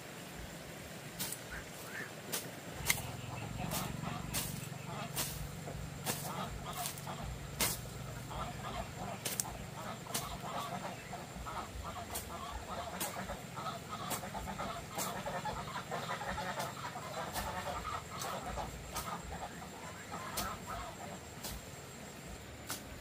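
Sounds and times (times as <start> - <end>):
poultry clucking and chattering: 1.2 - 22.7
sharp ticks: 6.0 - 10.4.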